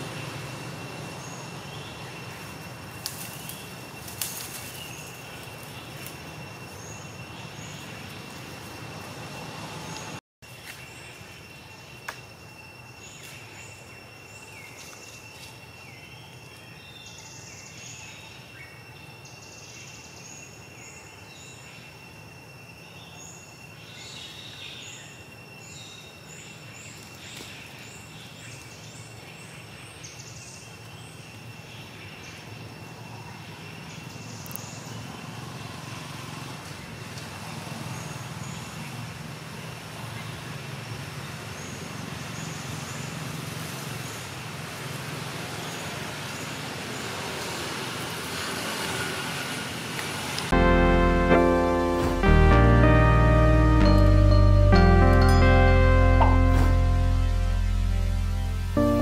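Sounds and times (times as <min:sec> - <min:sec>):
low rumble: 0:50.5 - 0:59.0.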